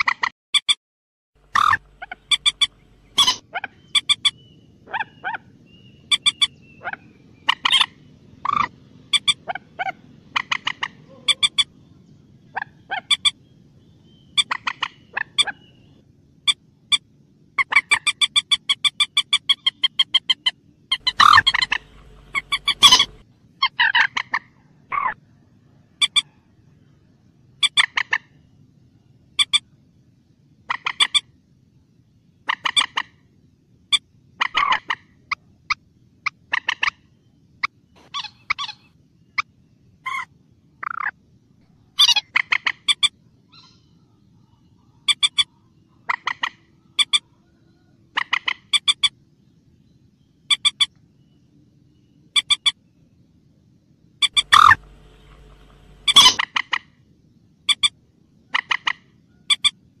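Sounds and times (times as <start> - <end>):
moorhen clucking calls: 1.4 - 11.7, 12.5 - 13.4, 14.3 - 15.8, 17.6 - 25.2, 26.0 - 26.3, 27.6 - 28.4, 30.7 - 31.2, 32.4 - 33.2, 33.9 - 37.0, 42.0 - 43.9, 44.8 - 49.1, 54.2 - 56.9, 58.5 - 59.8.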